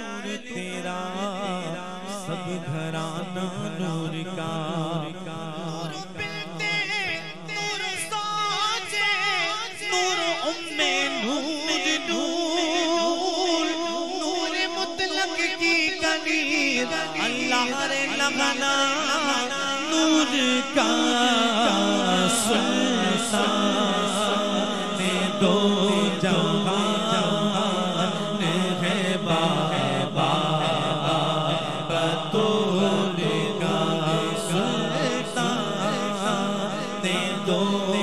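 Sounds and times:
man singing melismatic chant: 0.0s - 38.0s
men's voices drone: 16.7s - 38.0s.

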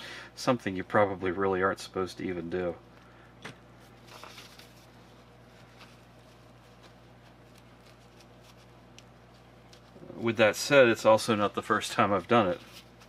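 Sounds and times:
low steady hum: 0.0s - 13.0s
paper towel rustling: 3.8s - 13.0s.

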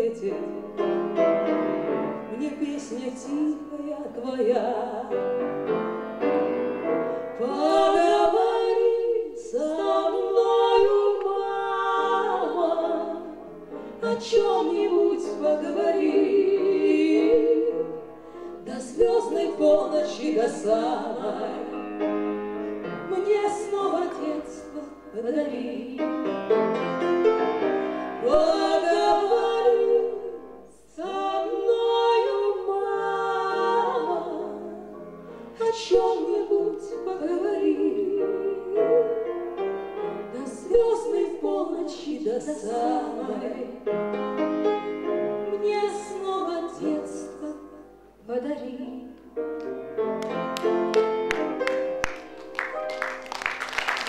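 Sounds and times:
woman singing: 0.0s - 0.7s, 2.3s - 5.2s, 7.4s - 13.4s, 14.0s - 18.0s, 18.6s - 21.8s, 23.0s - 26.2s, 28.2s - 34.8s, 35.6s - 39.3s, 40.3s - 43.8s, 45.5s - 49.3s
piano accompaniment: 0.0s - 48.3s, 49.0s - 54.0s.

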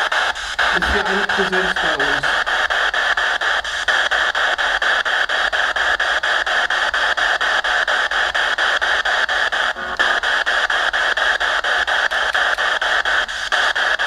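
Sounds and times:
radio static sweeping: 0.0s - 3.6s.

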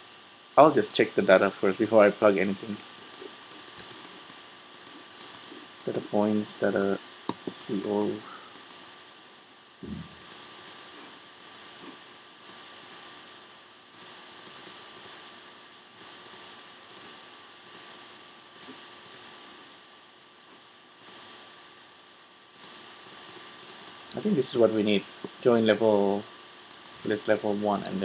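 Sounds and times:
faint steady room hiss: 0.0s - 28.0s
computer mouse clicking: 0.6s - 6.0s, 7.3s - 8.8s, 10.2s - 10.8s, 11.4s - 11.7s, 12.4s - 13.0s, 13.9s - 15.2s, 15.9s - 17.9s, 18.6s - 19.3s, 21.0s - 21.2s, 22.6s - 25.7s, 26.7s - 28.0s.

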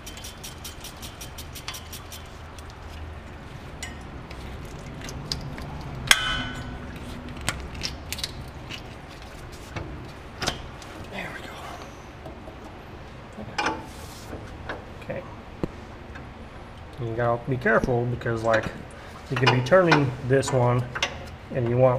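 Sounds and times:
ratchet clicking: 0.0s - 2.3s.

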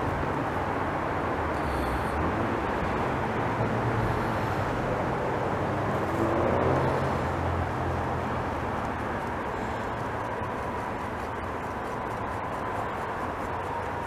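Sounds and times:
vehicle passing: 0.0s - 10.9s
road traffic rumble: 0.0s - 14.0s.

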